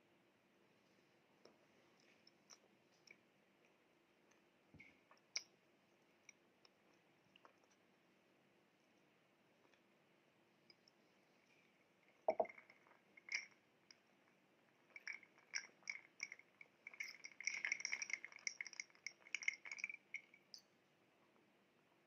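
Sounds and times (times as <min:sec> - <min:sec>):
soft chewing: 0:01.4 - 0:08.0.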